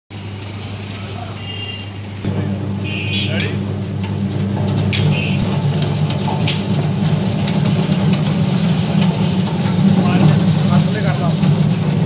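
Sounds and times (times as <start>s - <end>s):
machine motor hum: 0.2s - 12.0s
water from a hose: 5.1s - 12.0s.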